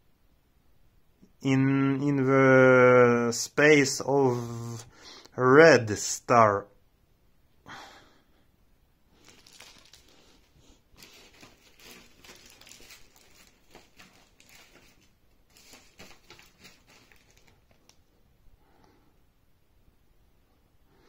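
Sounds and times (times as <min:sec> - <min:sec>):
paper and plastic rustling: 0:09.2 - 0:18.1.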